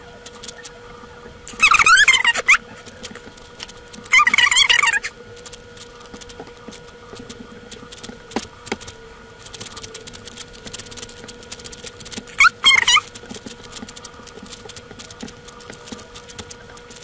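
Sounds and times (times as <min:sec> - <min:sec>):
loud wavering squeak: 0:01.5 - 0:02.7, 0:04.1 - 0:05.2, 0:12.3 - 0:13.1.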